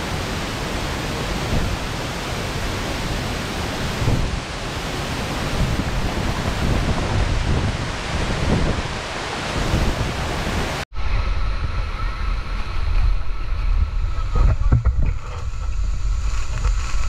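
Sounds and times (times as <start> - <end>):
waterfall roaring: 0.0 - 10.8
wind buffeting microphone: 0.0 - 17.0
deep rumble: 10.9 - 17.0.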